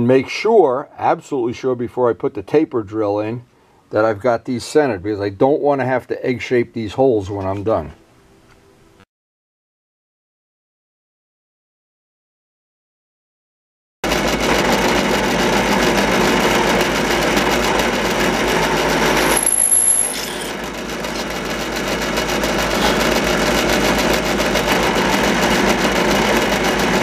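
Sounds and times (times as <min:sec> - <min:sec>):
drill press drilling metal: 0:14.1 - 0:27.0.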